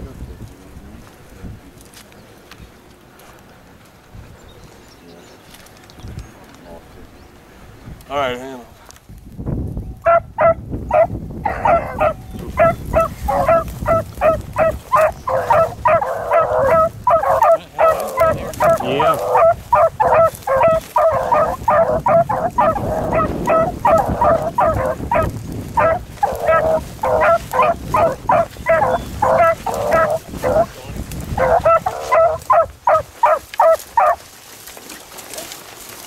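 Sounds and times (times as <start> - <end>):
hounds baying: 10.0 - 34.3.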